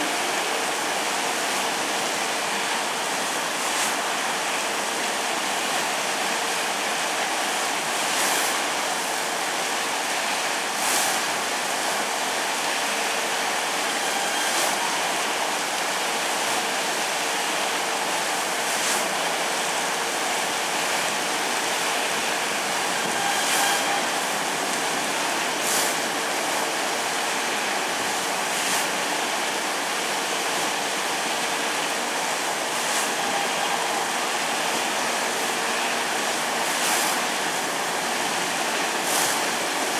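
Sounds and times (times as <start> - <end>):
water spray rushing: 7.5 - 12.8, 13.4 - 39.9.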